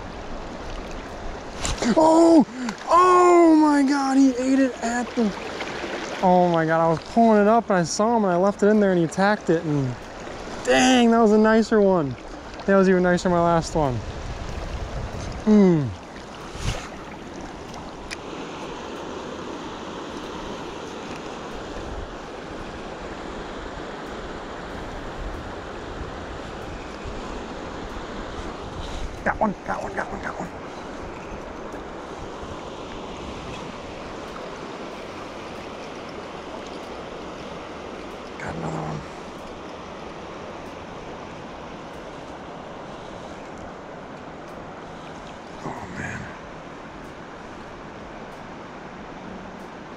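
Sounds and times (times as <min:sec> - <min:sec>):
flowing river water: 0:00.0 - 0:49.9.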